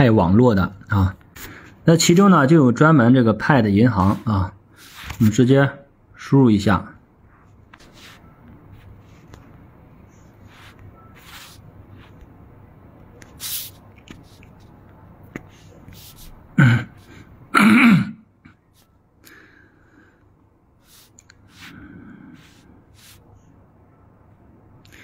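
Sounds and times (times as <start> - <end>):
man clearing his throat: 16.6 - 18.3
hissing breath: 20.9 - 22.8.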